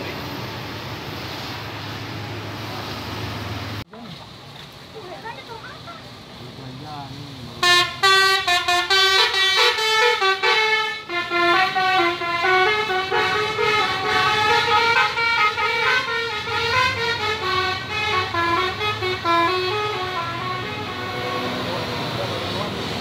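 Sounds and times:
musical air horn tune: 7.6 - 21.9.

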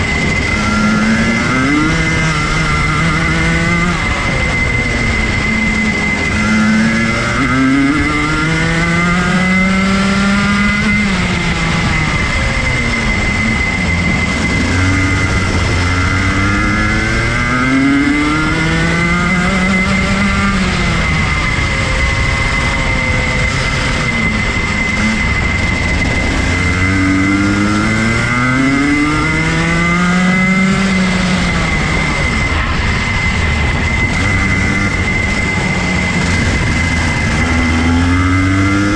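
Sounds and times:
kart engine revving: 0.0 - 38.9
steady high whine: 0.0 - 38.9.

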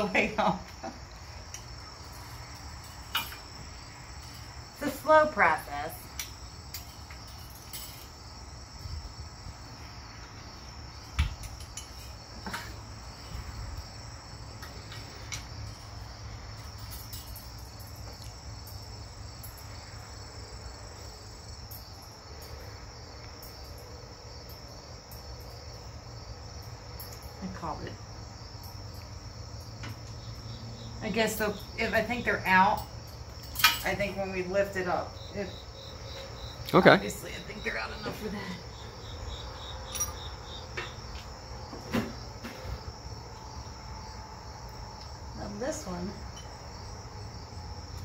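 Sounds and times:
crickets chirping: 0.0 - 48.0
hand tools clicking and clinking: 1.5 - 3.4, 6.1 - 8.1, 32.7 - 34.0, 39.9 - 41.2.

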